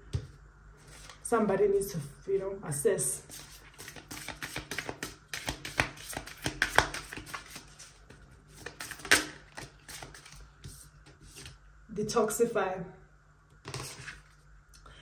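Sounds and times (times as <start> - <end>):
cards being shuffled: 3.3 - 11.6, 13.7 - 14.4.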